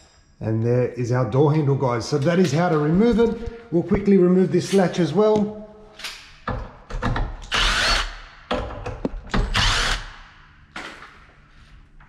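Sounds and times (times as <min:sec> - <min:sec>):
power drill driving screws: 0:07.4 - 0:08.2, 0:09.4 - 0:10.2.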